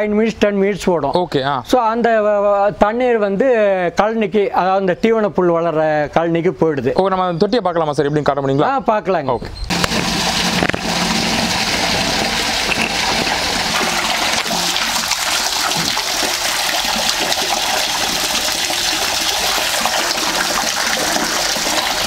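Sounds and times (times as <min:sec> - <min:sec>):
water pouring and splashing into tank: 0:09.7 - 0:22.0.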